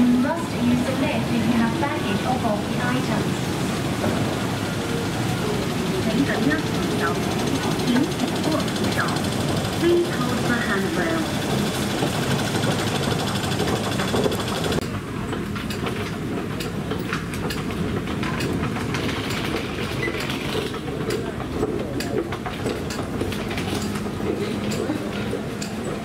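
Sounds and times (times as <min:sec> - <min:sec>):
luggage wheels on tiled floor: 0:04.0 - 0:26.0.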